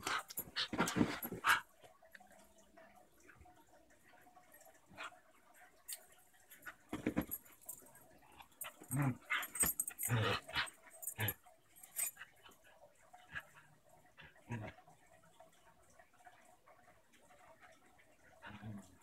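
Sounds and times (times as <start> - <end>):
dogs vocalising while playing: 8.2 - 14.9.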